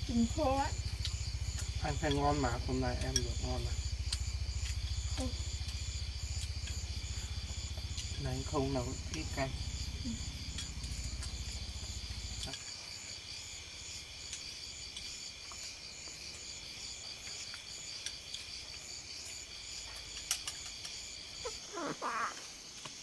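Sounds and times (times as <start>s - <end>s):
insects trilling: 0.0s - 23.0s
small child babbling: 21.4s - 22.5s.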